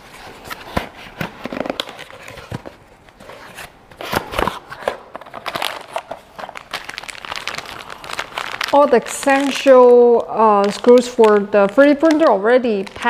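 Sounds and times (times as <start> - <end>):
plastic bag crinkling: 4.3 - 13.0.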